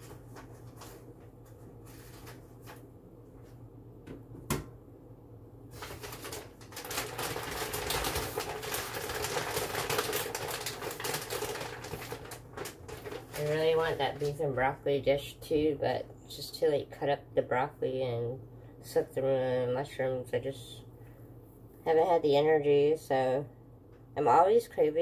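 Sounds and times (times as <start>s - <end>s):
paper bag crinkling: 0.0s - 2.9s, 5.7s - 14.4s.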